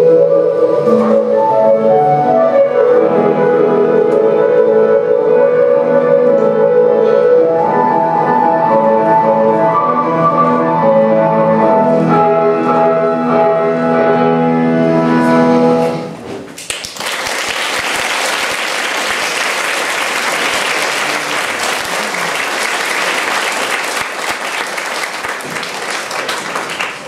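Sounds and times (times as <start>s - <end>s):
classical ballet music: 0.0s - 16.2s
audience applause: 16.6s - 27.0s.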